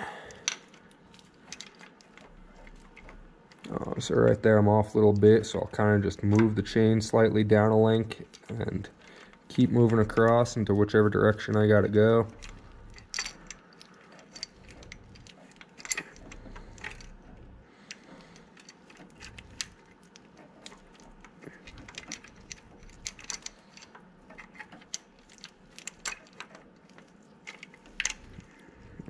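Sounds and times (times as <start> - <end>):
metal chain links clinking: 12.3 - 17.6, 18.4 - 29.0.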